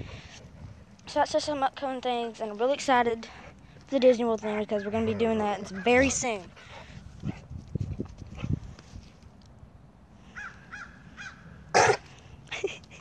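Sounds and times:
short cawing calls: 10.3 - 11.4.

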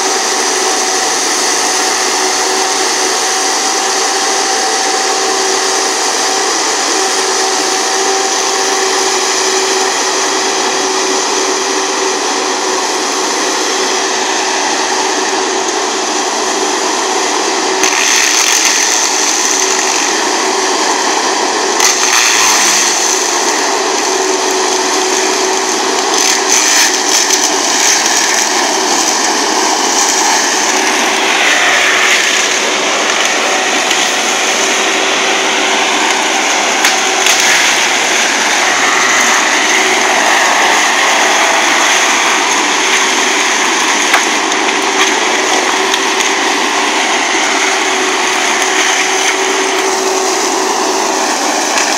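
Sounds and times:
mulcher running with high whine: 0.0 - 51.9
wood cracking: 17.8 - 20.2, 21.8 - 35.1, 39.0 - 51.9.

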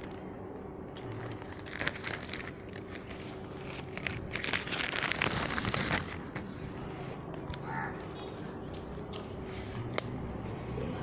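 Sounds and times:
plastic mailer bag crinkling: 1.0 - 6.6.

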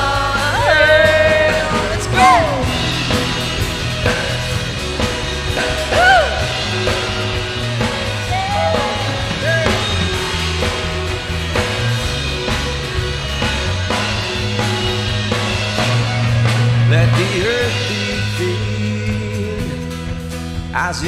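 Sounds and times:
band playing instrumental: 0.0 - 21.0.

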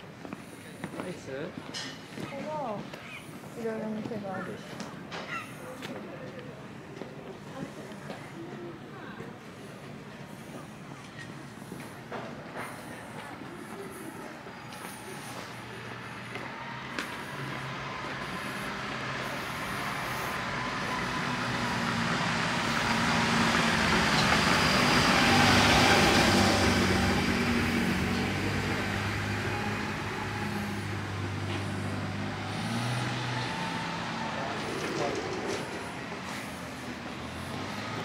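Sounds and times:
truck engine running: 10.3 - 38.0
hiss: 17.0 - 27.1.

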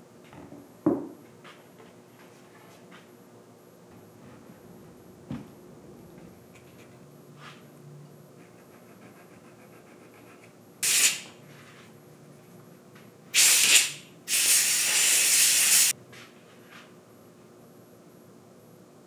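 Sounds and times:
compressed air blow gun bursts: 10.8 - 11.2, 13.4 - 15.9.

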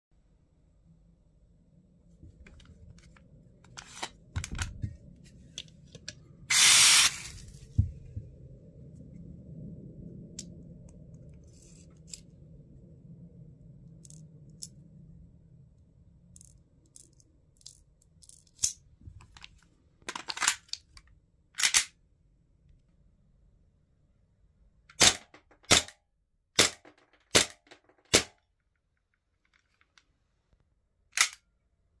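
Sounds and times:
gas hissing into pistol magazine: 6.5 - 7.4
handling clicks and rubs: 16.3 - 21.9.

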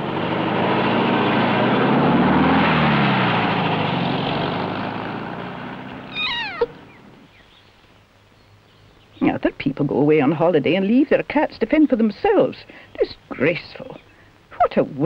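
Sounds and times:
vehicle passing by: 0.5 - 7.3
cat meowing: 6.1 - 6.9.

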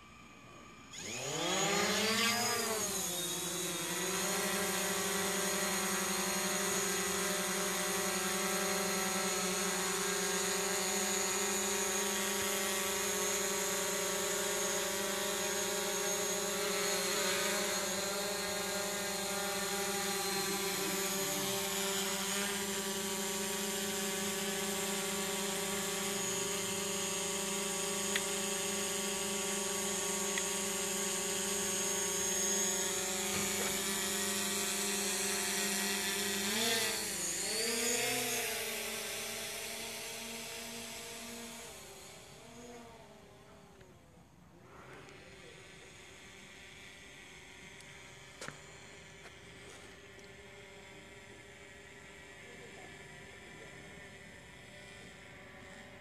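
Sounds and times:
drone propellers buzzing: 0.0 - 44.0, 44.6 - 56.0.

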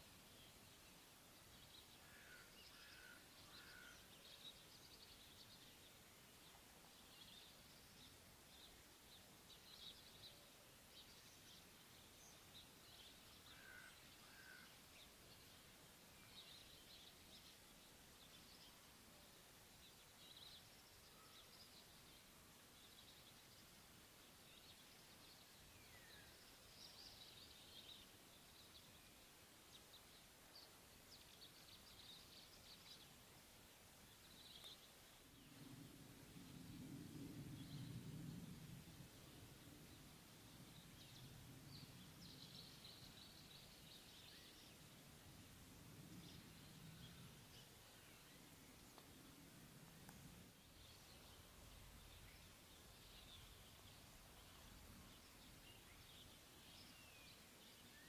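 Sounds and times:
small birds chirping: 0.0 - 58.0
low bird calls: 2.0 - 4.1, 13.5 - 14.8.

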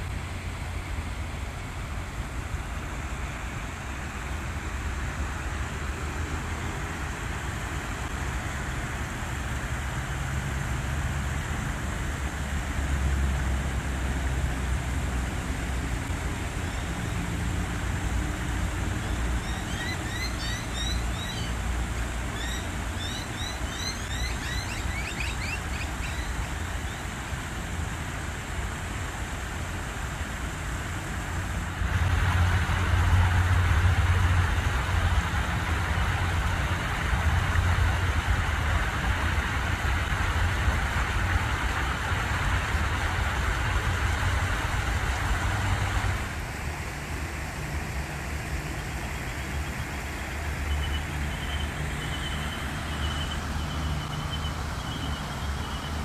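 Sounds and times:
distant road traffic hum: 0.0 - 56.0
small bird chirping: 19.0 - 21.6, 22.3 - 27.0.

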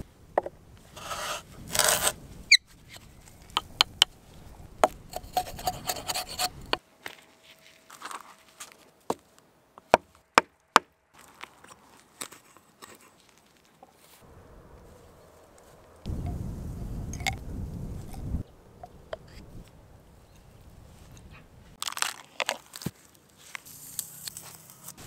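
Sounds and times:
drill bit rasping wood: 5.1 - 6.8.

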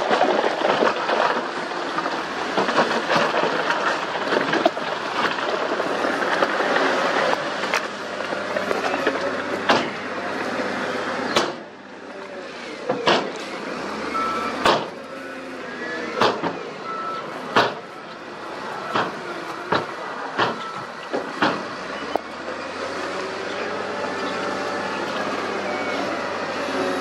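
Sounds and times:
loader diesel engine running: 0.0 - 27.0
short beeps: 14.1 - 14.6.

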